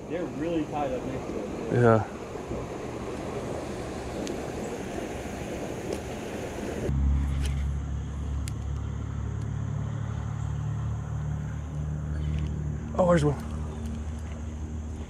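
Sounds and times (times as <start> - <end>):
water rushing over spillway: 0.0 - 6.9
low mechanical hum: 0.0 - 15.0.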